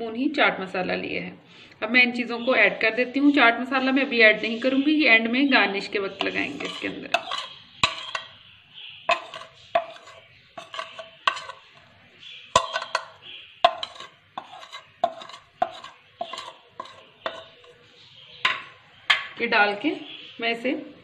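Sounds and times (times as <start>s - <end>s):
metal spoon clinking on ceramic plate: 6.2s - 8.4s, 9.1s - 11.7s, 12.6s - 17.8s.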